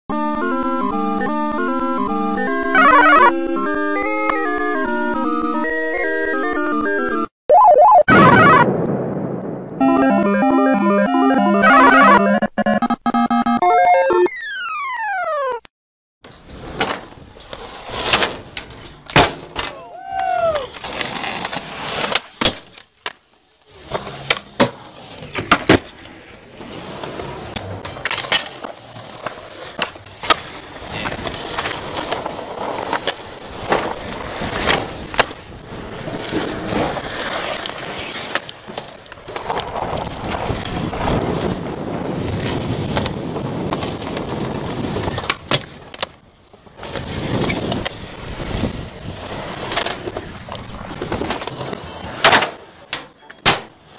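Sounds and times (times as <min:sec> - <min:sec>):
skateboard wheels rolling on concrete: 0:00.1 - 0:07.2, 0:16.2 - 0:53.9
skateboard clacking on ground: 0:16.4 - 0:26.0.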